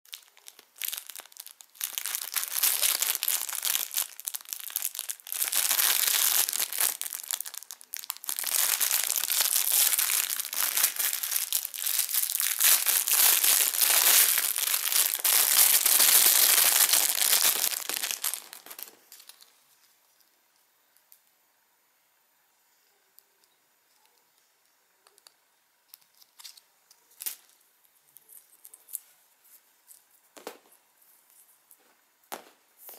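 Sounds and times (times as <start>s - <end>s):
plastic bag crinkling: 0.1s - 19.7s.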